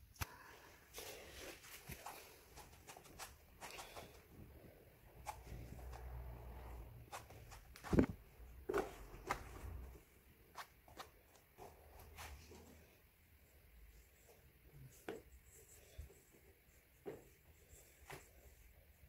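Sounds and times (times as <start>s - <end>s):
soft bare footsteps: 0.2s - 13.0s, 14.1s - 18.8s
fabric sheet rustling: 5.4s - 8.2s.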